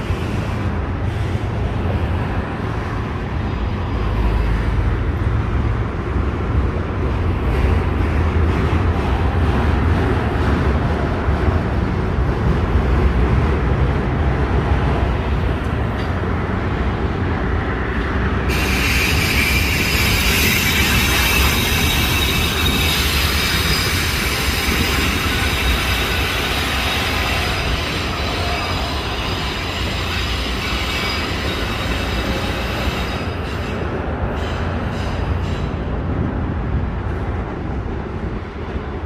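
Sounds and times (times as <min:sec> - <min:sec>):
freight train rumble: 0:00.0 - 0:39.0
high-pitched wheel squeal: 0:18.5 - 0:33.8.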